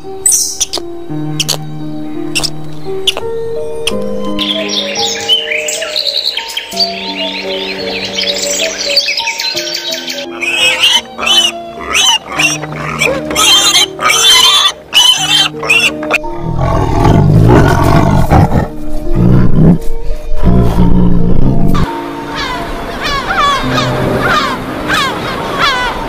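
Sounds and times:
background music: 0.0 - 26.0
piglets squealing: 10.3 - 16.3
tiger growling: 10.6 - 21.9.

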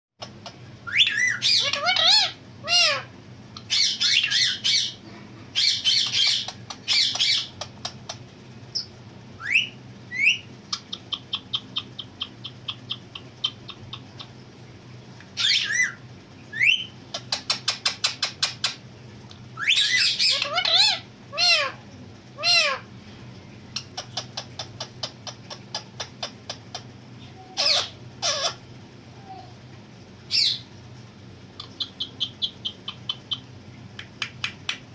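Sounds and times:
parakeet rising whistles: 0.8 - 1.7, 9.4 - 10.5
parakeet squawking calls: 0.8 - 8.1, 15.4 - 18.8, 19.6 - 21.8, 22.4 - 23.0, 23.8 - 28.7, 30.3 - 30.7.

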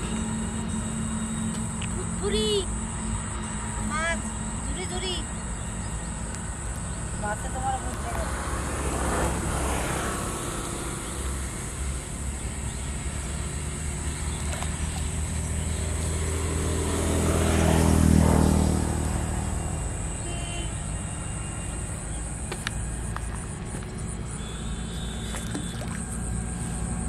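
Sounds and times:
vehicle engine passing by: 7.2 - 27.0.

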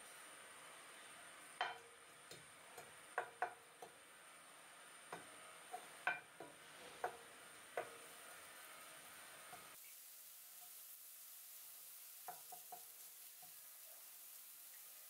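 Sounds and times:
wooden spatula tapping a frying pan: 1.6 - 4.0, 5.1 - 8.2, 12.2 - 13.6.

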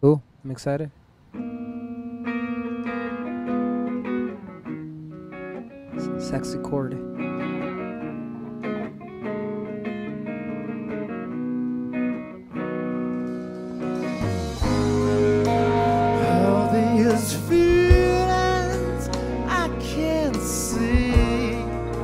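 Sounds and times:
guitar picking chords: 1.3 - 22.0
bass guitar: 1.4 - 22.0
drums with cymbals: 13.2 - 19.4
person singing: 15.0 - 22.0.

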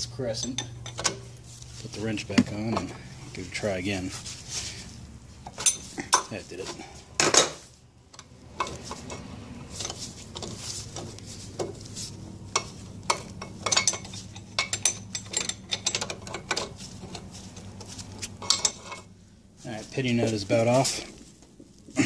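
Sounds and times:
steady low hum: 0.0 - 22.0
small metallic clicks and clinks: 12.5 - 17.3, 18.3 - 19.1.

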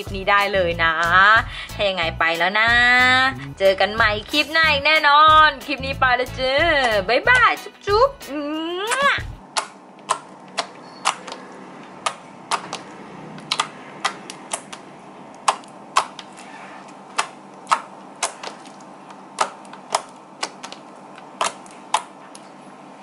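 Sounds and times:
slime clicking and popping: 9.6 - 11.4, 12.0 - 14.8, 15.4 - 16.3, 17.1 - 22.2.

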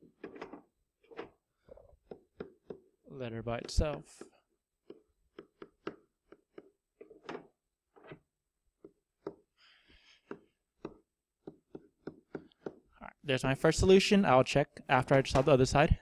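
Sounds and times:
stylus tapping on tablet screen: 10.2 - 12.9.

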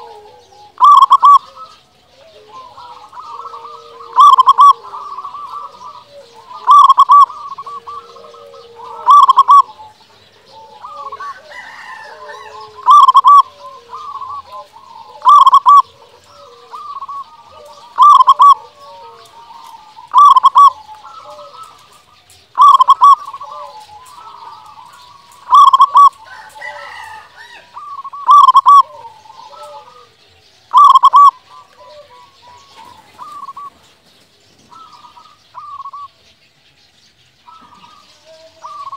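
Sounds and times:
dove cooing: 0.0 - 36.2, 37.5 - 38.9.

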